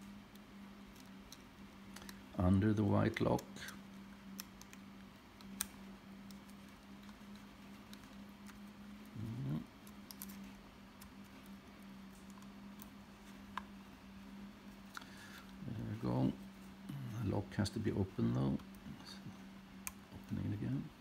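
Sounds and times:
steady low hum: 0.0 - 21.0
pick clicking and scraping: 3.2 - 13.8.

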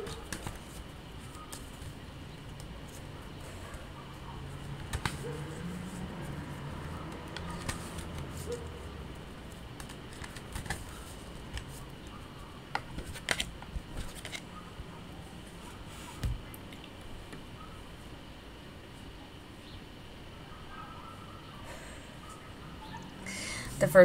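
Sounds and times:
cards being shuffled: 0.0 - 3.1, 4.6 - 8.8, 9.5 - 11.9, 12.7 - 14.5.

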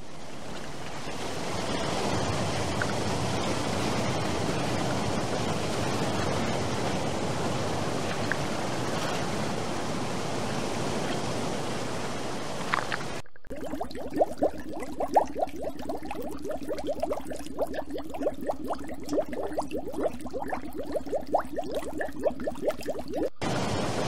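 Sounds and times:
water sloshing and splashing: 0.0 - 24.0
faint small clicks: 12.6 - 13.2.

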